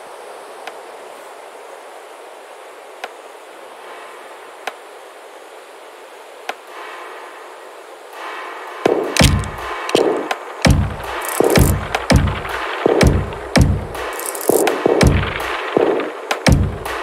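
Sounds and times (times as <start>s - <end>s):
hissing ambient bed: 0.0s - 17.0s
pitched synth layer: 8.8s - 17.0s
deep bass hits and percussion: 8.9s - 17.0s
sharp clicks: 8.9s - 17.0s.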